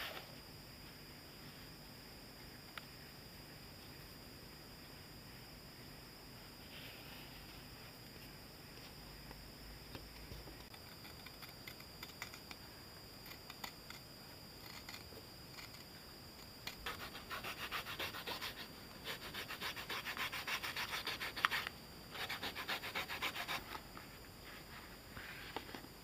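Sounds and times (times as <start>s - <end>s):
hands rubbing leather rasping: 16.8s - 23.8s.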